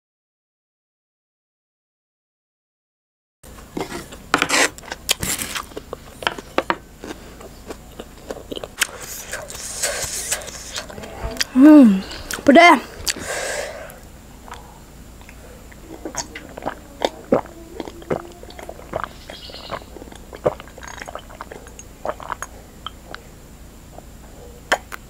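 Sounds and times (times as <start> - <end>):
person gulping: 15.3 - 19.2, 20.0 - 23.2.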